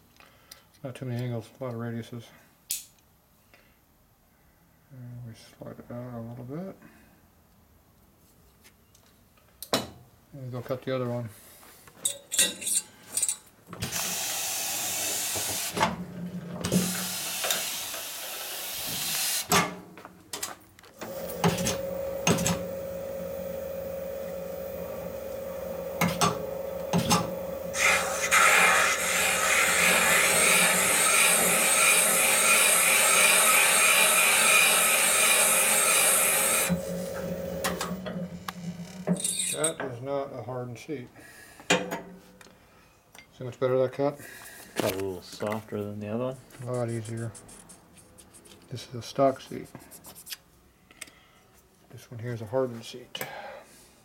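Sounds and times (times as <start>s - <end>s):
machine hiss: 16.8s - 19.5s, 21.0s - 39.0s
spindle whining: 21.0s - 39.7s
cutter scraping metal: 21.0s - 39.8s.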